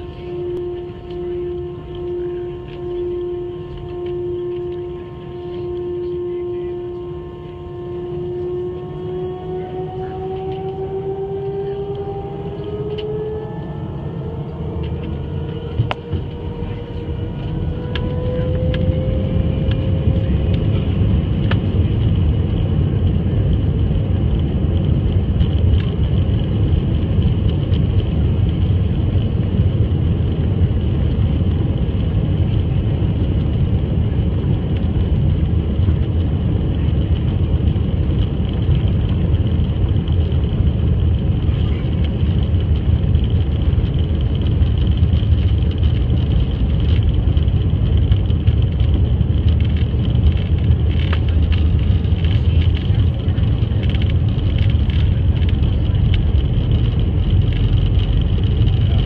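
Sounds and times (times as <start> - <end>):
jet engines spooling up: 0.0 - 34.9.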